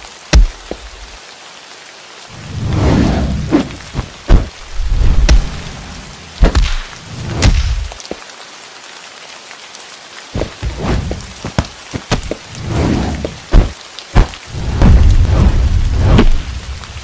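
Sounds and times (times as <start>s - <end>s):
rain falling: 0.0s - 17.0s
thunder: 14.5s - 16.5s.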